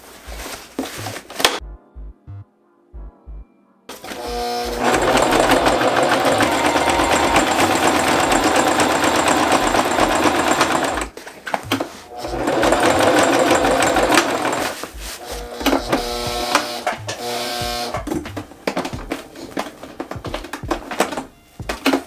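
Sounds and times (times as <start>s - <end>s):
sewing machine stitching fast: 4.0s - 11.2s, 11.8s - 18.1s.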